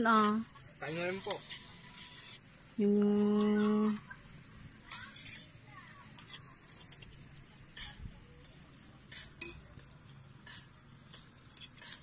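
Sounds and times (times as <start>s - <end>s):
cutlery and dishes clinking: 4.8s - 5.5s, 9.1s - 9.8s, 10.4s - 12.0s.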